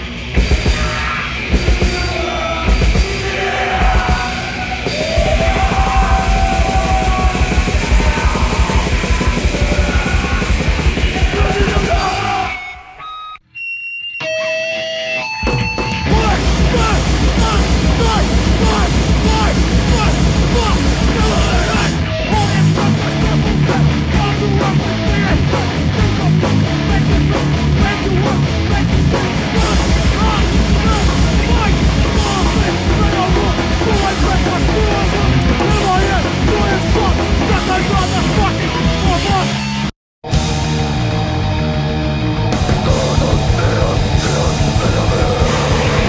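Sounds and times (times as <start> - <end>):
rapid dense drumming: 0.0 - 12.4, 15.5 - 39.6, 42.6 - 46.0
heavy extreme metal music: 0.0 - 13.0, 14.3 - 46.0
distorted electric guitar: 0.0 - 13.4, 14.2 - 46.0.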